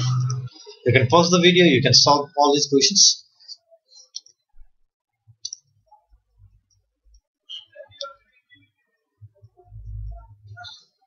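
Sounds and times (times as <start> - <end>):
faint low hum: 3.5 - 11.0.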